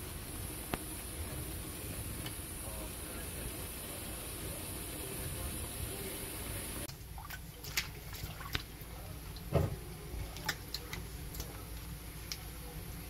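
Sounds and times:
pot boiling hiss: 0:00.0 - 0:07.6
water splashing in sink: 0:07.0 - 0:12.4
thump-splash: 0:09.5 - 0:09.8.

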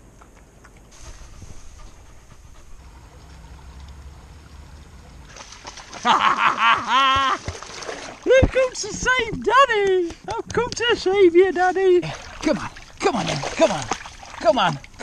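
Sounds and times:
dog splashing in water: 0:04.5 - 0:09.6, 0:11.0 - 0:15.0.

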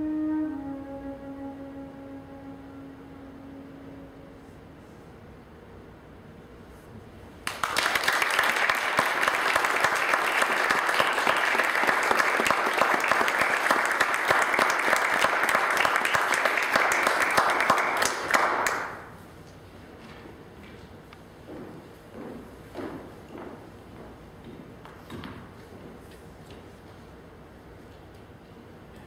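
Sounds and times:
audience applauding: 0:07.4 - 0:19.1.

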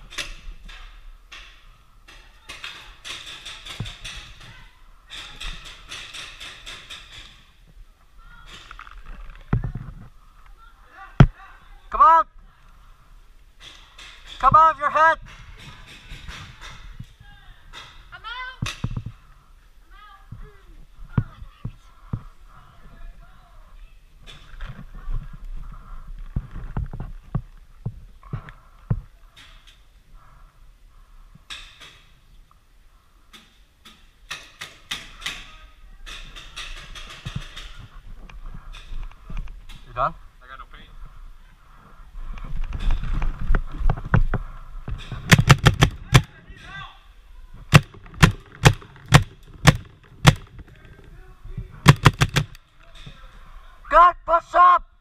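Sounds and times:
paintball markers firing: 0:45.3 - 0:46.3, 0:47.7 - 0:50.5, 0:51.8 - 0:52.6.

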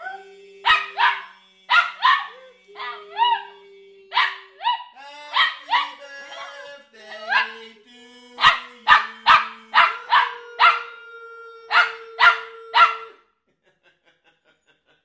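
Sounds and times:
small dog barking: 0:00.6 - 0:03.4, 0:04.1 - 0:06.0, 0:08.4 - 0:10.8, 0:11.7 - 0:13.2.

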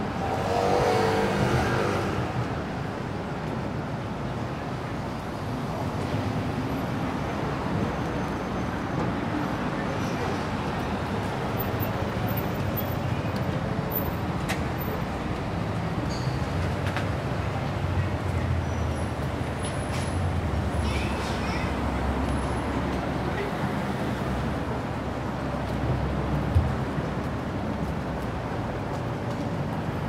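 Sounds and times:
city road traffic: 0:00.0 - 0:30.0.

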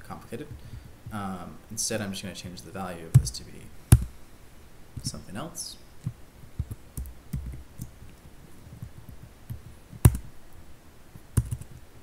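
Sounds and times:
keyboard typing clicks: 0:10.0 - 0:10.3, 0:11.4 - 0:11.8.

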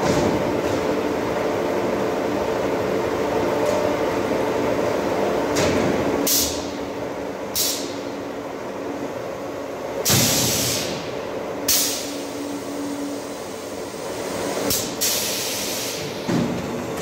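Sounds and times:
machine mechanical hum: 0:00.0 - 0:17.0
pneumatic air hiss bursts: 0:06.2 - 0:06.7, 0:07.6 - 0:08.0, 0:10.0 - 0:11.0, 0:11.7 - 0:13.4, 0:14.1 - 0:16.2.

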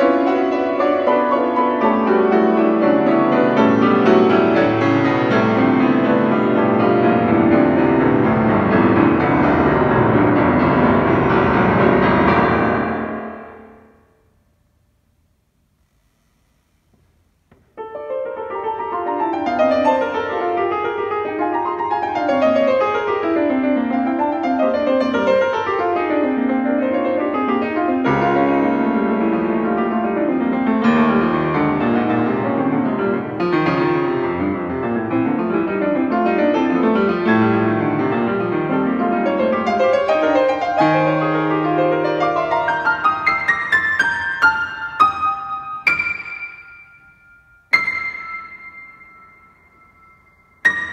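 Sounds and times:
grand piano solo: 0:00.0 - 0:13.9, 0:17.5 - 0:50.9.

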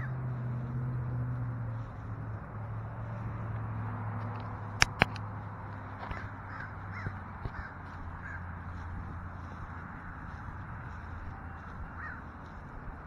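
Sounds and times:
crows cawing: 0:00.0 - 0:00.2, 0:06.0 - 0:12.7
sharp clicks: 0:04.2 - 0:05.3.

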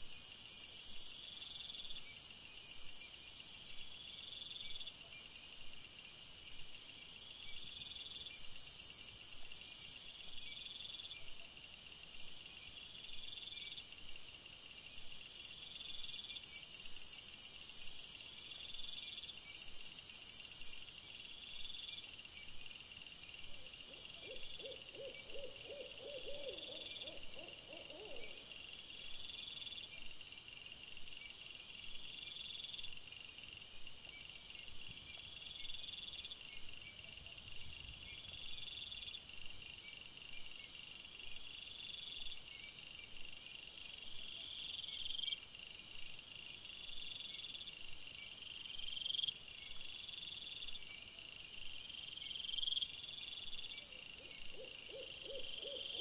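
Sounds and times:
low wavering hoot: 0:23.9 - 0:28.5, 0:54.5 - 0:56.0.

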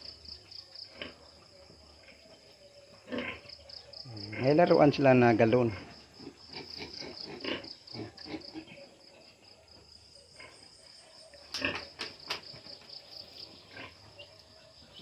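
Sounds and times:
piglets grunting: 0:03.0 - 0:04.8, 0:05.6 - 0:09.0.

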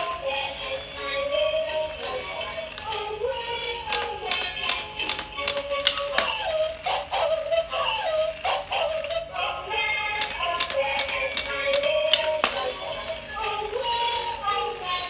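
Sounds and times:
toy electronic melody: 0:00.0 - 0:15.0
sharp clicks: 0:03.8 - 0:06.8, 0:10.1 - 0:13.8.

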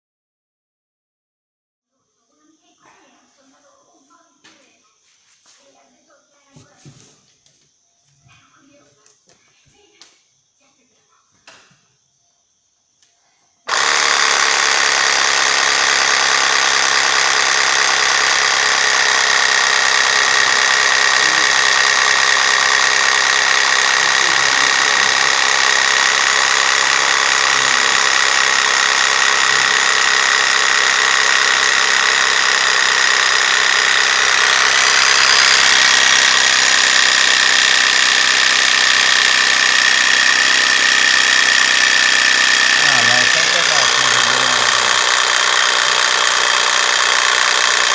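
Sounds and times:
air compressor whining and rattling: 0:13.7 - 0:47.9.

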